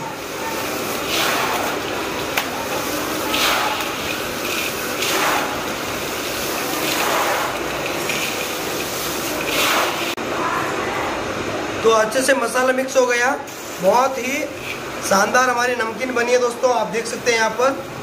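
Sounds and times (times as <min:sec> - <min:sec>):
dry snack mix rattling in metal basin: 0:00.6 - 0:10.2.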